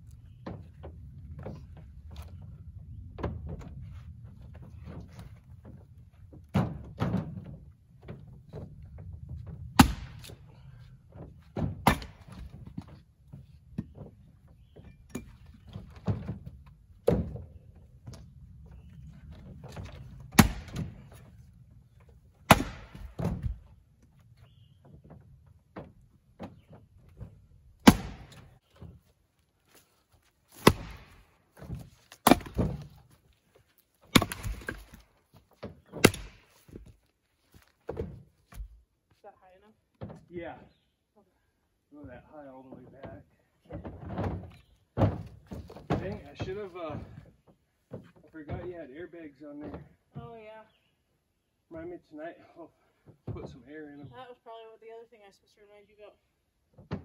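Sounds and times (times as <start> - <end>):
firewood thudding into truck bed: 9.7 - 10.3, 11.4 - 12.9, 19.7 - 21.2, 22.4 - 23.7, 27.8 - 29.0, 30.5 - 33.1, 34.1 - 35.0, 35.6 - 36.9, 43.7 - 47.2
axe splitting wood: 9.8 - 10.5, 11.6 - 13.0, 19.7 - 21.3, 22.4 - 23.7, 27.8 - 28.9, 30.5 - 33.2, 34.0 - 35.0, 35.6 - 36.9.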